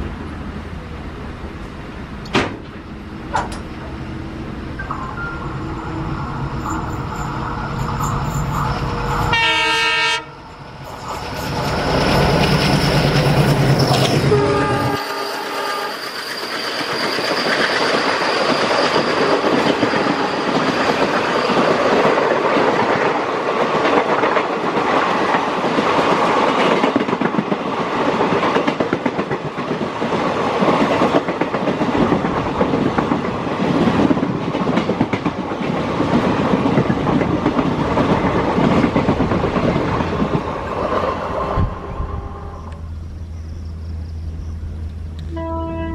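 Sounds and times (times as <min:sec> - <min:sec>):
diesel locomotive engines running: 0:00.0 - 0:45.9
locomotive horn blasts: 0:09.3 - 0:10.5, 0:14.2 - 0:16.0, 0:41.8 - 0:42.8, 0:45.3 - 0:45.9.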